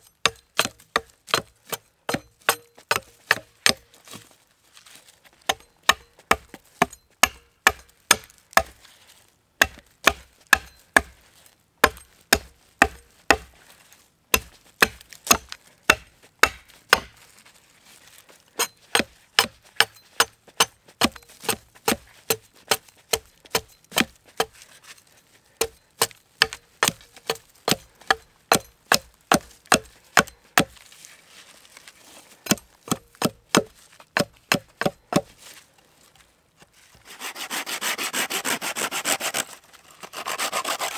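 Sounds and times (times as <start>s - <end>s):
axe chopping into a log: 0.2s - 3.8s, 5.5s - 8.8s, 9.6s - 11.2s, 11.8s - 13.5s, 14.3s - 17.2s, 18.6s - 24.6s, 25.6s - 30.8s, 32.5s - 35.3s.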